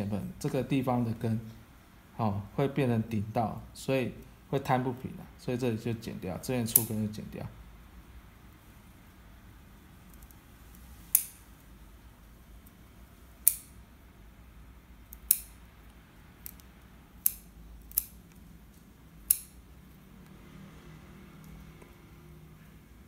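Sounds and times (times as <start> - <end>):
scissors snipping roots: 16.4 - 18.3, 19.2 - 19.6.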